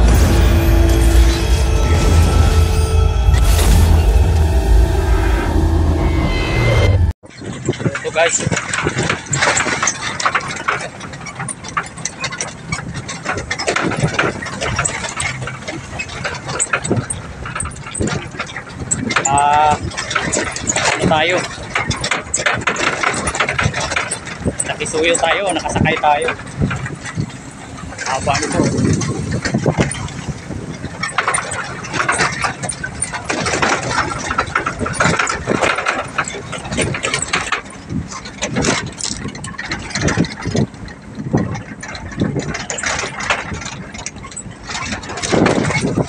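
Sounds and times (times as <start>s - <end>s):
metal truck bed rattling: 0.0s - 3.1s, 7.3s - 46.0s
truck engine running: 0.0s - 7.2s.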